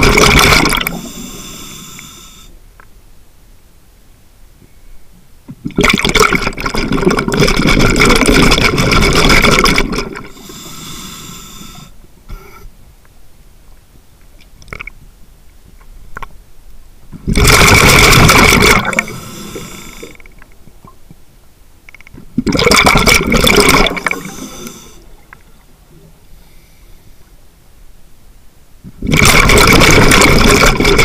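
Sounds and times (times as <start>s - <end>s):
exhaled bubble bursts underwater: 0.0s - 1.1s, 5.7s - 10.3s, 17.3s - 19.2s, 22.4s - 25.3s, 29.0s - 31.0s
faint clicks: 21.8s - 22.3s, 25.2s - 25.5s.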